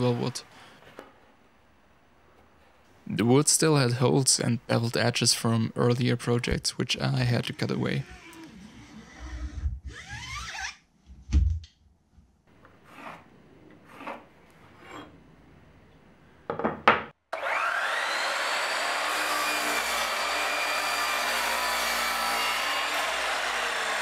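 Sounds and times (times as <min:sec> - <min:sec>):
pencil scratching on wood: 0:12.8 - 0:15.1
miter saw cutting wood: 0:17.4 - 0:24.0.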